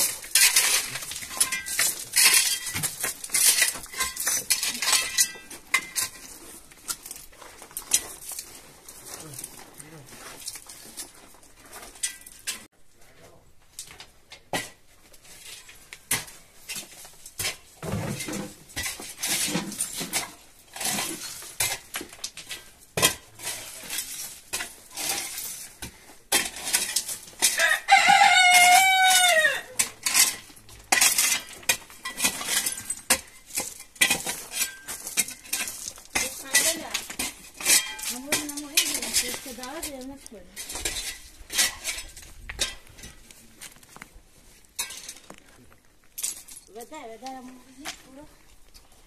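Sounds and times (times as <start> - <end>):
shovel scraping gravel: 0.0 - 12.7, 14.6 - 45.6
rooster crowing: 27.6 - 29.8.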